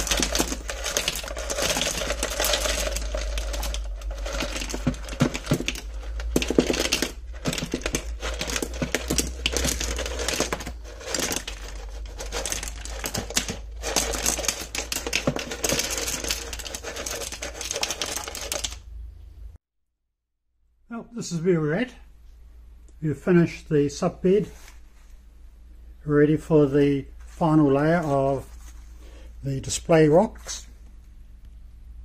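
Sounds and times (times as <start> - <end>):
aquarium stones and sand clattering: 0.0 - 18.9.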